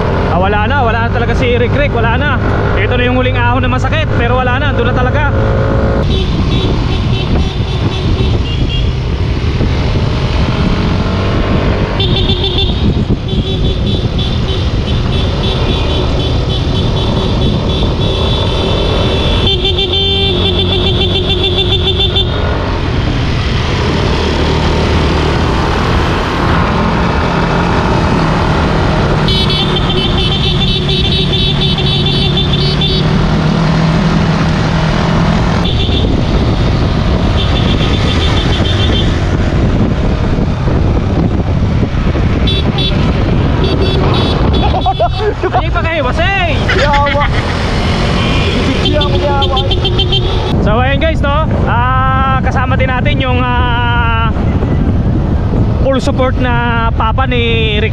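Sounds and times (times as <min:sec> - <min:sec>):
wind noise: 0:00.0 - 0:57.9
motorcycle engine running: 0:05.4 - 0:22.7, 0:25.8 - 0:45.2
vehicle horn rapid beeps: 0:06.1 - 0:09.0, 0:12.0 - 0:22.4, 0:29.2 - 0:33.1, 0:35.6 - 0:36.2, 0:37.4 - 0:39.1, 0:42.4 - 0:45.2, 0:48.1 - 0:50.5.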